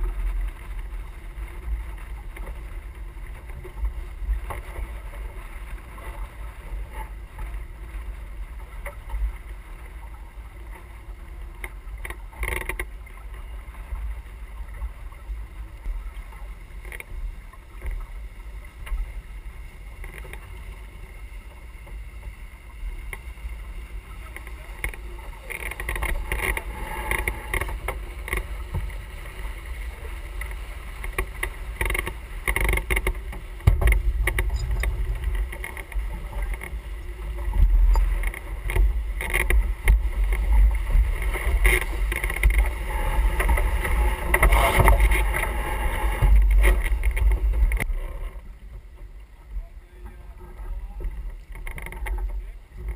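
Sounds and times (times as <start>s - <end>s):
water splashing along hull: 0.0s - 52.9s
wind on microphone: 23.5s - 48.8s.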